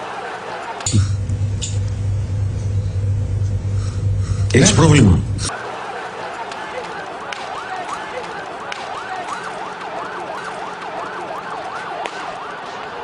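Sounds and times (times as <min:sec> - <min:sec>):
street noise: 0:05.4 - 0:13.0
emergency siren yelping: 0:06.5 - 0:13.0.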